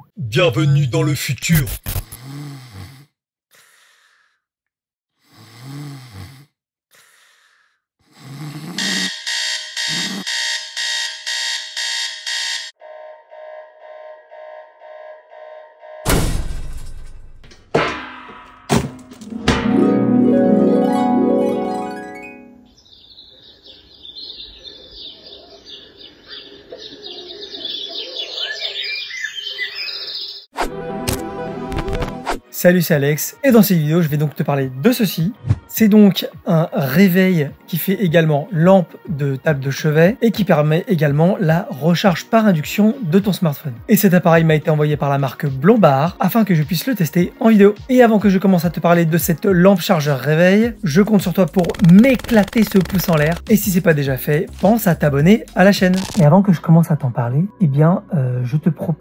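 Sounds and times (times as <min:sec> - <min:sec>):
man snoring: 0:02.0 - 0:03.7, 0:05.2 - 0:06.6, 0:08.0 - 0:09.1
breathy out-breath: 0:02.1 - 0:04.5, 0:05.2 - 0:08.8
birdsong alarm chirps: 0:22.3 - 0:30.5.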